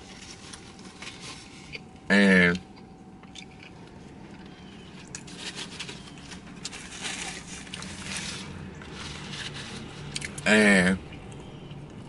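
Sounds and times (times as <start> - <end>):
paper napkin rustling: 0.0 - 1.8, 4.9 - 10.2.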